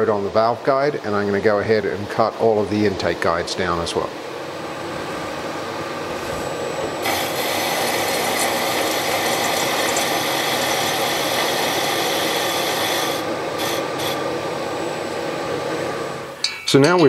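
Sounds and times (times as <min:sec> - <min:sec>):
milling machine spindle running: 0:04.6 - 0:16.3
harsh high metal cutting: 0:07.0 - 0:14.2.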